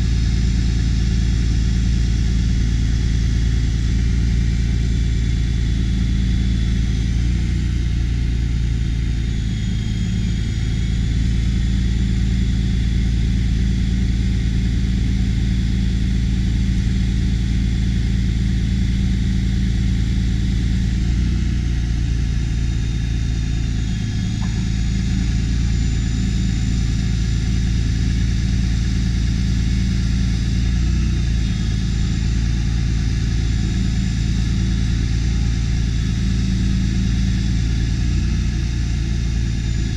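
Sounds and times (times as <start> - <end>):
truck engine running: 0.0 - 39.9
high whine of aerial boom: 21.7 - 38.1.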